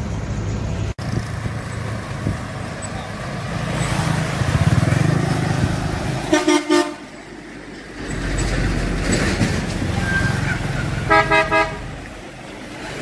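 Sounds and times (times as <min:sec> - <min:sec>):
trucks and motorbikes passing: 0:00.0 - 0:13.0
vehicle horn tooting: 0:06.3 - 0:07.0, 0:11.1 - 0:11.9.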